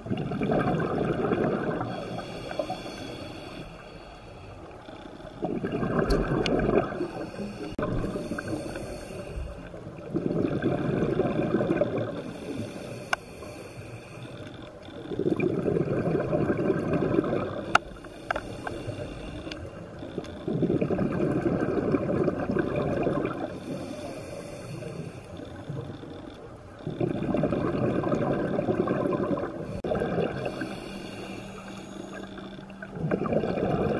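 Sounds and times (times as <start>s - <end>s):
exhaled bubbles rushing: 0.0s - 2.0s, 5.4s - 8.3s, 9.9s - 12.2s, 15.2s - 17.8s, 20.4s - 23.6s, 26.9s - 30.6s, 32.8s - 33.9s
regulator inhalation hiss: 2.0s - 4.6s, 7.1s - 9.6s, 12.2s - 14.5s, 18.0s - 19.7s, 23.6s - 25.4s, 30.4s - 32.6s.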